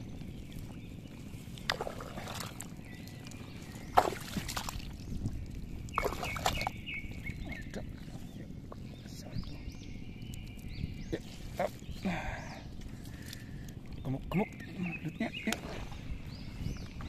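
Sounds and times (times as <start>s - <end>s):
hands squelching through wet mud: 0.4s - 7.6s.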